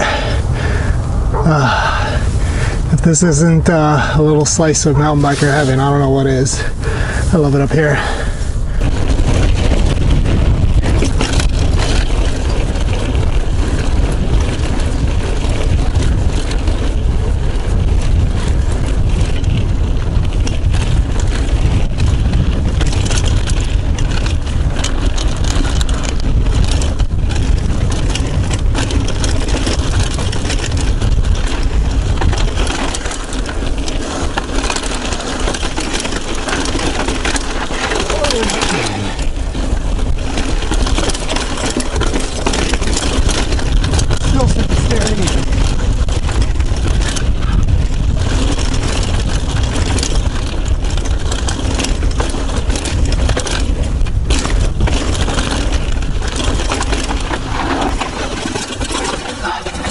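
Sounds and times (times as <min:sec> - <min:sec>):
bike clicks and rattles: 0:00.0 - 0:59.9
tyre rumble on dirt trail: 0:00.0 - 0:59.9
wind buffeting microphone: 0:00.0 - 0:59.9.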